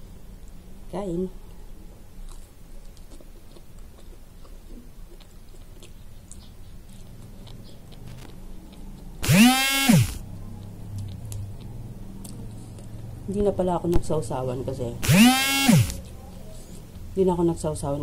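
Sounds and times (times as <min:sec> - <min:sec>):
person chewing food: 0:02.2 - 0:09.3, 0:10.0 - 0:13.2.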